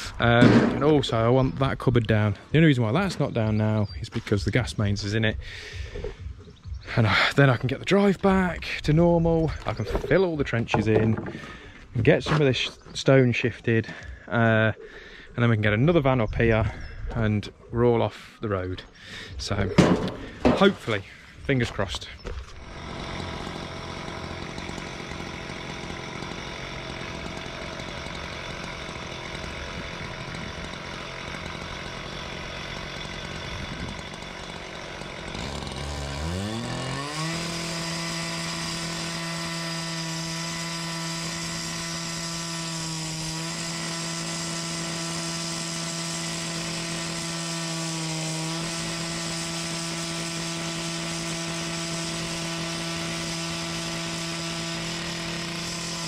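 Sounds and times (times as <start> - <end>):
disc cutter cutting concrete: 19.4 - 56.0.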